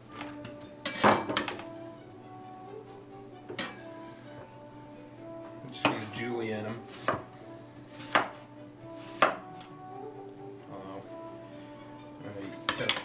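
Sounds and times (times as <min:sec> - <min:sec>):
knife chopping on cutting board: 0:06.8 - 0:09.7.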